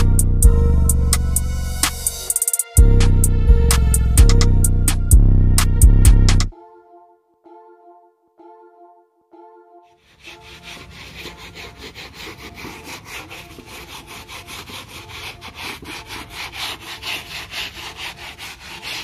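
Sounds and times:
brush scrubbing wet carpet: 10.1s - 19.0s.

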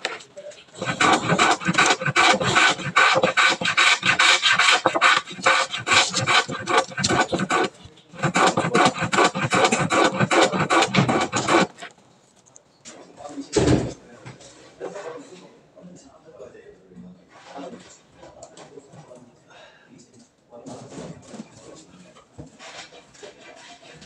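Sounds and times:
utility knife scraping ceiling tile: 0.0s - 11.9s, 22.6s - 24.0s.

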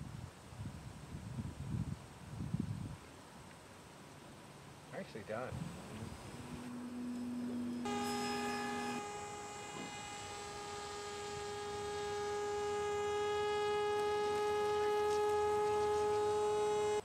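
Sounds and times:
model airplane motor whining: 5.8s - 17.0s.

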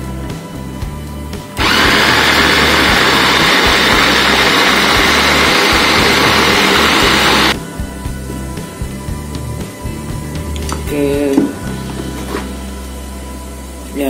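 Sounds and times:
food chopper motor whirring: 1.6s - 7.6s.

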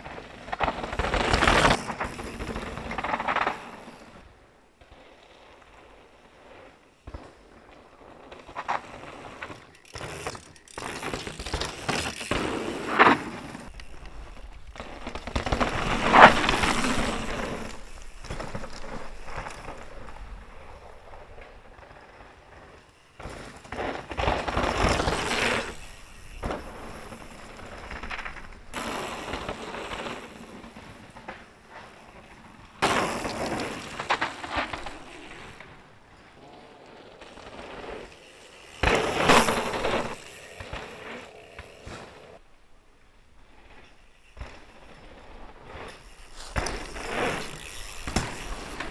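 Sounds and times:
bike tyres rolling over dirt: 0.0s - 48.9s
bike landing knocks: 46.4s - 48.9s.

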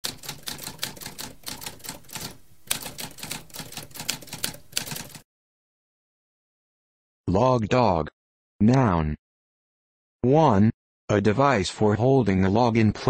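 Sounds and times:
typewriter keys clacking: 0.0s - 5.2s.

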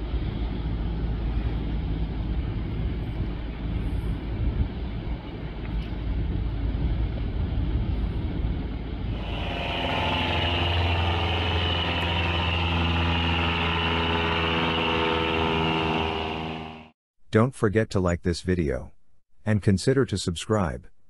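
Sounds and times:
low rumble: 0.0s - 17.0s
jet engines whining: 8.7s - 17.0s.

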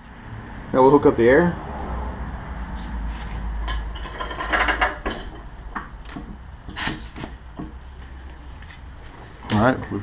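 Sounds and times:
metal coupler clicking and rattling: 3.7s - 6.2s.

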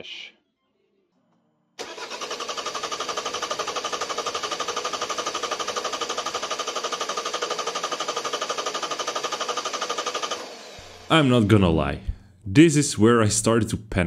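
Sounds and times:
starter cranking diesel engine: 1.8s - 11.5s.

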